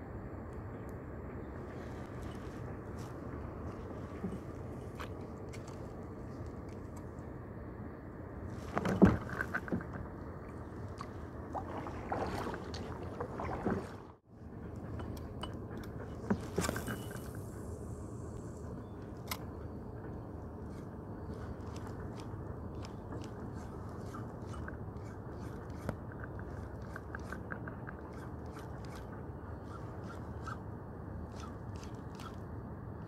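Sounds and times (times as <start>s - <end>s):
wind and water rushing: 8.4s - 14.3s.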